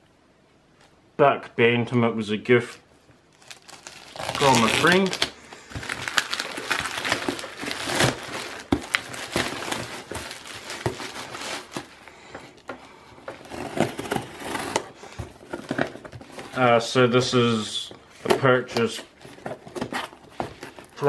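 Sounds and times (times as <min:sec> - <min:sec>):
plastic bag crinkling and crackling: 0:03.3 - 0:16.8, 0:18.7 - 0:21.0.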